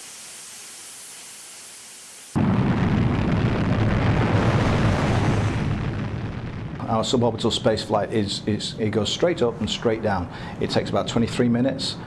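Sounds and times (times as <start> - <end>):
faint hiss: 0.0 - 2.4
rocket motor roaring: 2.4 - 6.9.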